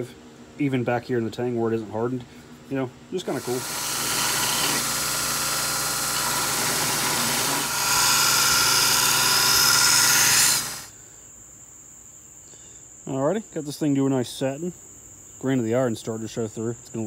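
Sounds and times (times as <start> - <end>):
belt grinder grinding blade: 3.3 - 10.9
crickets trilling: 7.6 - 17.0.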